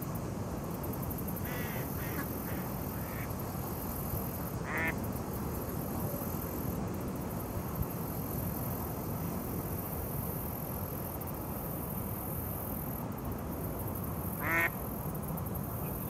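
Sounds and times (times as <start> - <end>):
outdoor background noise: 0.0 - 16.0
duck quack: 1.5 - 3.3, 4.7 - 5.0, 14.4 - 14.8.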